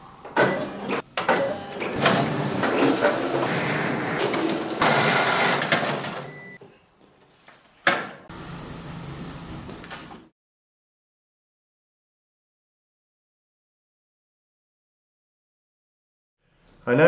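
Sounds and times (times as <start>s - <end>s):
copier rollers rattling: 1.9s - 6.3s.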